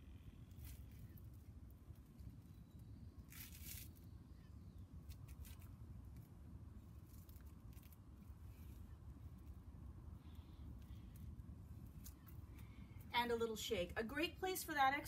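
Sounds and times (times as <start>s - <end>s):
low outdoor rumble: 0.0s - 15.0s
faint scratchy rustles: 0.5s - 2.6s, 3.3s - 13.1s.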